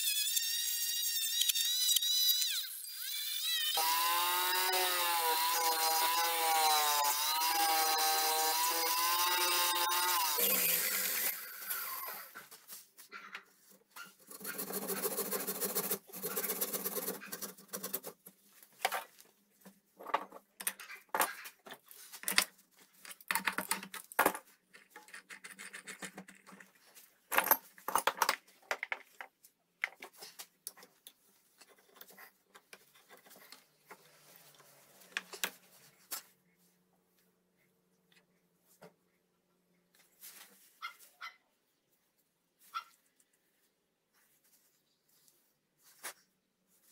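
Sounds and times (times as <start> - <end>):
clicks and scrapes of metal and wood: 11.7 - 36.3.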